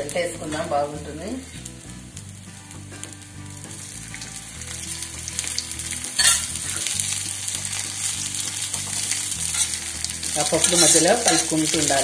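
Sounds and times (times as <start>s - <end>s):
leaves sizzling in hot oil: 0.0s - 12.0s
spatula scraping pan: 10.4s - 11.7s.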